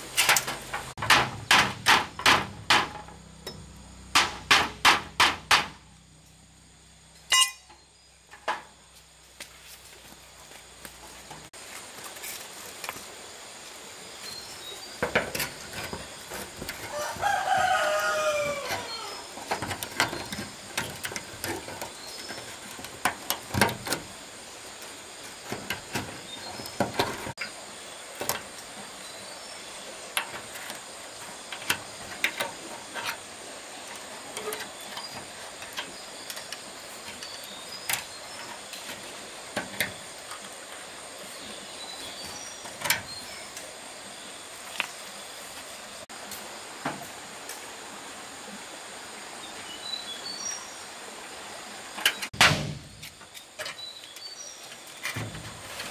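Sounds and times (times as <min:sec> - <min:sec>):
steady hiss: 0:00.0 - 0:55.9
sharp knocks and taps: 0:00.7 - 0:05.8
rooster crowing: 0:16.9 - 0:19.4.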